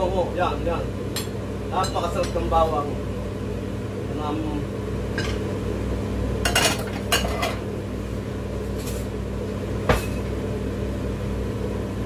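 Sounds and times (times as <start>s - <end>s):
steady low hum: 0.0s - 12.0s
dishes and cutlery clinking: 6.5s - 7.6s.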